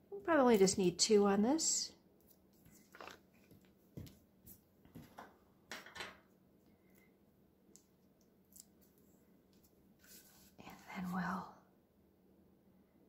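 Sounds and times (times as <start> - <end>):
paper rustling: 2.5 - 4.2.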